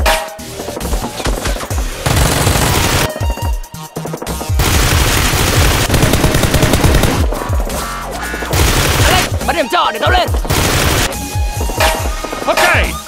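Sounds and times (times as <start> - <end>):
background music: 0.0 - 13.0
automatic gunfire: 2.0 - 3.1, 4.6 - 7.3, 8.5 - 9.3, 10.5 - 11.2.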